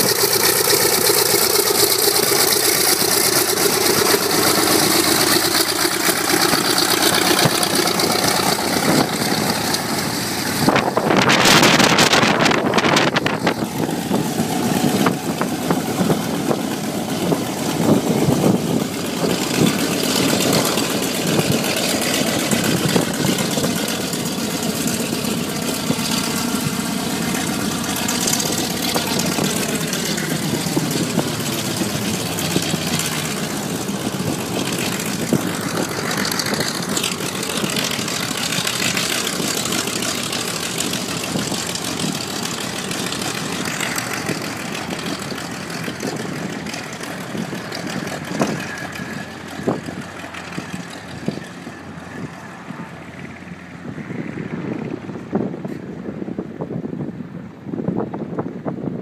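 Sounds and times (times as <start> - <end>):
radial aircraft engine taxiing: 0.0 - 58.5.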